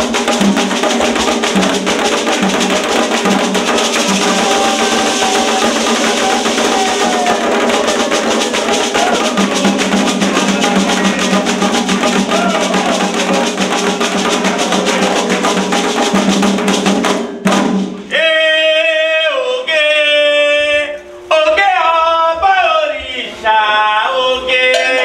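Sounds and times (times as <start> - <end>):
fast hand drumming: 0.0 - 18.0
voices singing: 2.9 - 15.7, 18.1 - 25.0
person singing unaccompanied: 3.0 - 15.4, 18.1 - 25.0.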